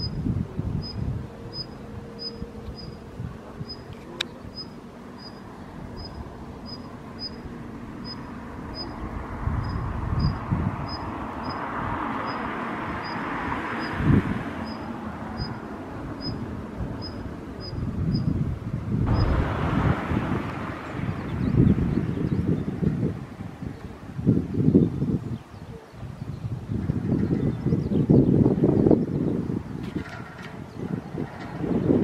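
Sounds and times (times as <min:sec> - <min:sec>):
rushing background noise: 0:00.0 - 0:24.9
low thump: 0:19.0 - 0:22.0.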